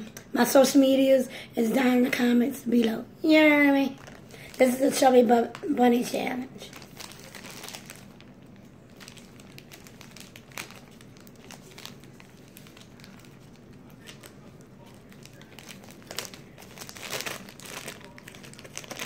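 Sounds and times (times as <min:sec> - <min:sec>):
plastic bag crinkling: 0:03.8 - 0:05.8, 0:06.6 - 0:19.0.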